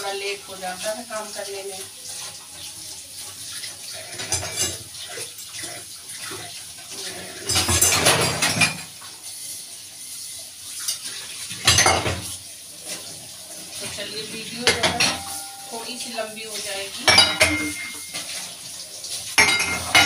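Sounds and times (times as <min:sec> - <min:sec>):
tap water running into sink: 0:00.0 - 0:20.0
metal pots clinking: 0:04.2 - 0:05.5, 0:07.4 - 0:09.0, 0:10.9 - 0:12.3, 0:14.6 - 0:18.6, 0:19.3 - 0:20.0.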